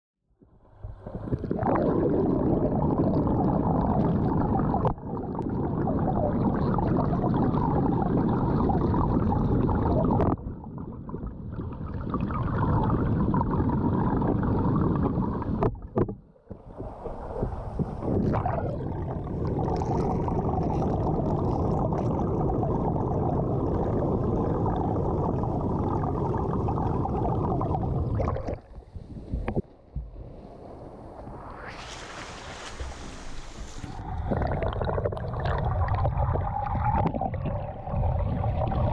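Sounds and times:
muffled underwater rushing water: 0.5 - 38.9
splashing: 31.7 - 34.4.

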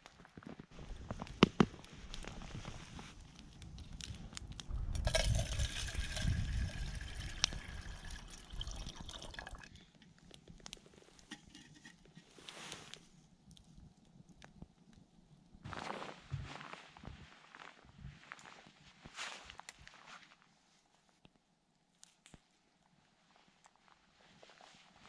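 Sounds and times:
campfire crackling: 0.0 - 15.6
water pouring into metal kettle: 4.9 - 9.7.

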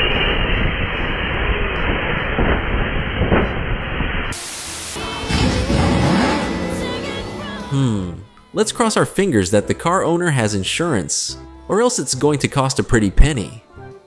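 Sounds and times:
static noise burst: 4.3 - 7.8
loud rushing hiss: 4.4 - 8.0.

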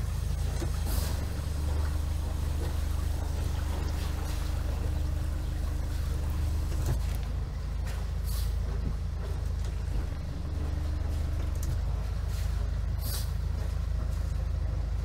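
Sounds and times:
faint steady hum: 0.0 - 8.0
boat engine idling: 0.0 - 15.0.

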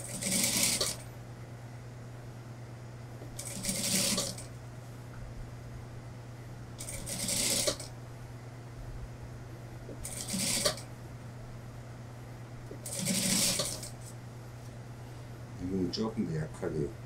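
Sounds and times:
sewing machine stitching: 0.0 - 1.0, 3.4 - 4.5, 6.8 - 7.9, 10.0 - 10.8, 12.8 - 14.0
steady low hum: 0.0 - 17.0.

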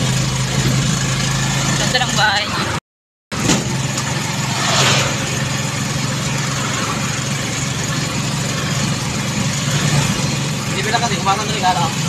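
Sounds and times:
road noise: 0.0 - 12.0
vehicle engine running: 0.0 - 12.0
brief rush of noise: 4.3 - 5.8.

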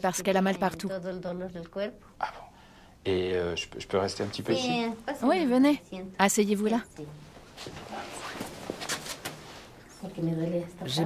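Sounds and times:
footsteps and shuffling: 7.1 - 10.1.

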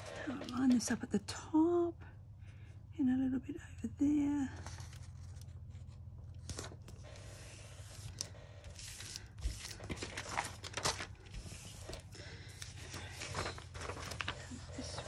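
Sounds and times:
paper envelope rustling: 4.6 - 15.0.

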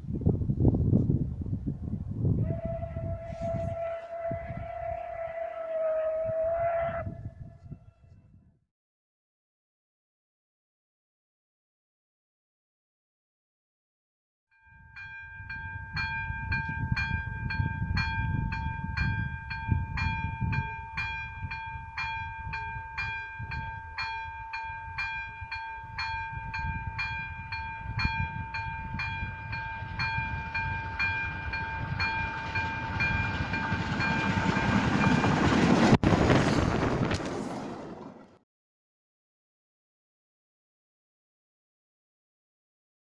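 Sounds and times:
steam locomotive passing: 2.4 - 7.1, 15.5 - 38.4
level crossing warning bell: 14.6 - 35.5.

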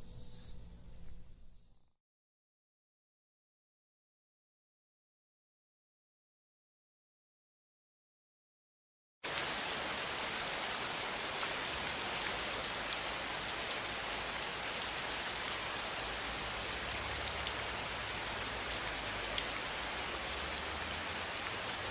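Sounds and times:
steady rain hiss: 9.3 - 21.9.

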